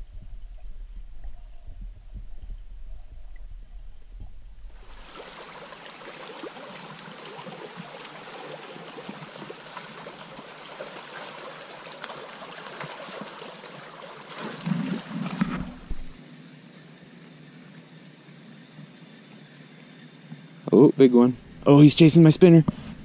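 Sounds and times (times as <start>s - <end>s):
low rumble: 0.0s - 5.0s
water rushing over weir: 4.8s - 16.2s.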